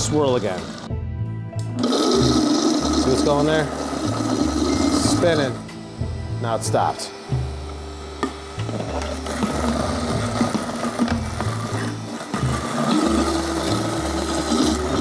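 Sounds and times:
blender motor whine: 0:00.0 - 0:01.0, 0:01.6 - 0:15.0.

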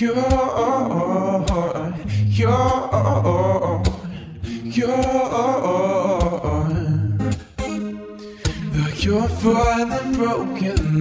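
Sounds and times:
person singing long wavering notes: 0:00.0 - 0:11.0.

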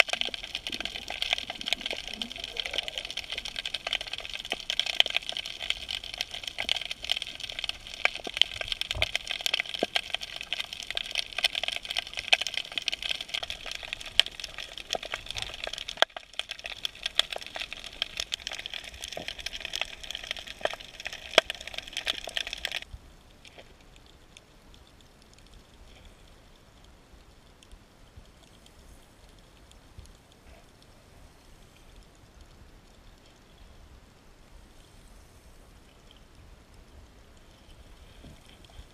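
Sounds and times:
underwater crackle of sharp clicks: 0:00.0 - 0:30.9
faint hiss: 0:00.0 - 0:38.9.

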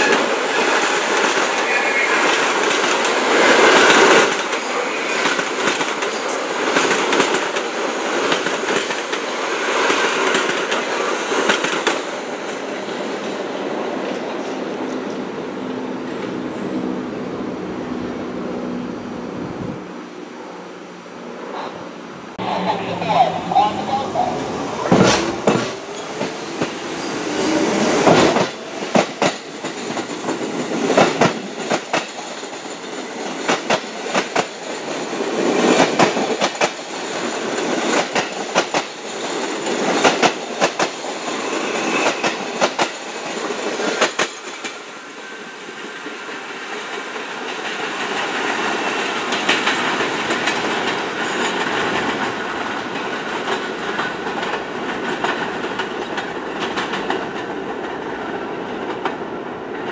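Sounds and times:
train rumble: 0:00.0 - 0:59.9
train wheels clacking: 0:02.2 - 0:12.7, 0:24.9 - 0:44.9, 0:45.7 - 0:59.2.

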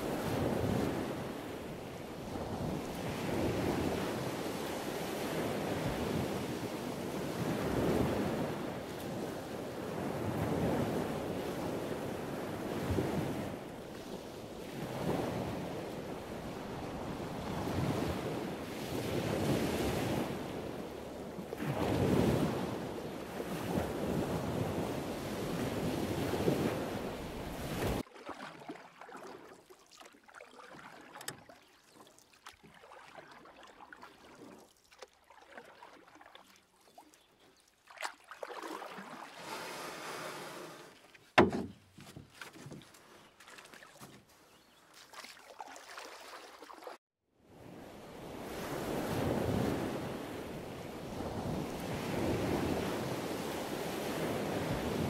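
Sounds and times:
faint water sloshing: 0:26.4 - 0:47.0.

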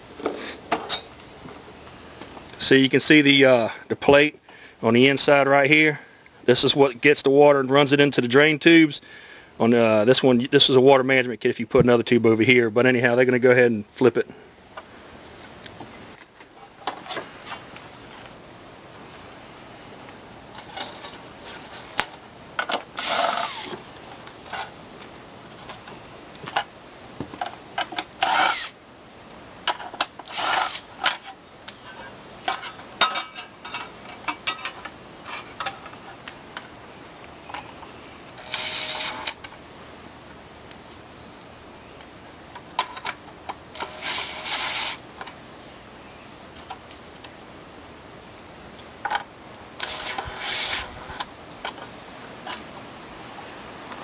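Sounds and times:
cordless drill driving screws: 0:23.0 - 0:23.8, 0:28.2 - 0:28.8, 0:30.2 - 0:30.9, 0:38.4 - 0:39.4, 0:43.8 - 0:45.0, 0:49.8 - 0:51.3.

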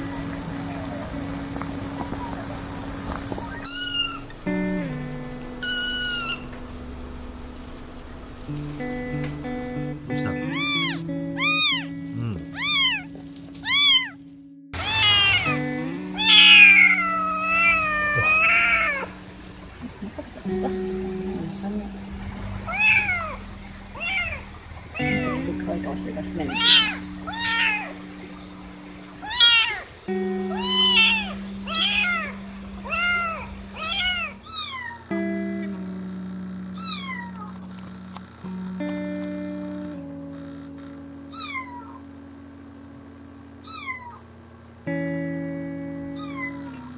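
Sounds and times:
background music: 0:00.0 - 0:22.6, 0:25.0 - 0:34.1
kittens meowing: 0:02.0 - 0:04.6, 0:05.6 - 0:06.5, 0:10.1 - 0:14.2, 0:14.8 - 0:21.8, 0:22.7 - 0:25.6, 0:26.4 - 0:28.5, 0:29.2 - 0:35.1, 0:36.7 - 0:37.7, 0:41.3 - 0:42.1, 0:43.6 - 0:44.3, 0:46.0 - 0:46.9.

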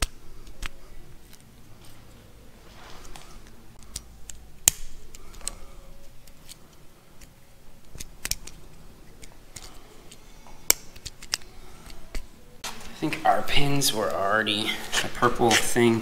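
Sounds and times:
plastic connector clicking: 0:03.8 - 0:05.6, 0:09.2 - 0:12.3.

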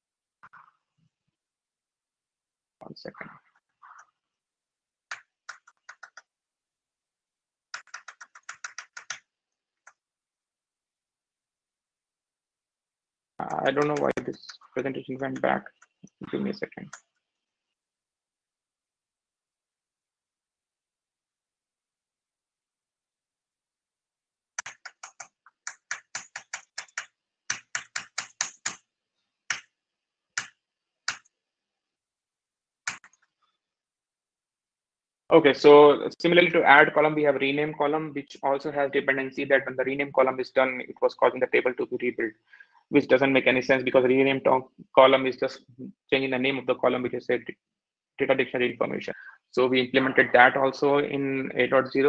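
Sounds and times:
keyboard keys tapping: 0:07.7 - 0:10.0, 0:13.4 - 0:17.0, 0:24.6 - 0:28.9.

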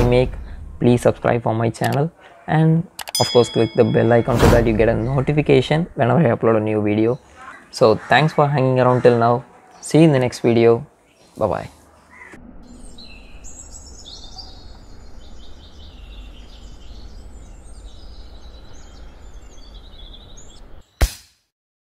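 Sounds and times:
birds chirping and singing: 0:00.0 - 0:21.0
sharp crack: 0:20.9 - 0:21.5.

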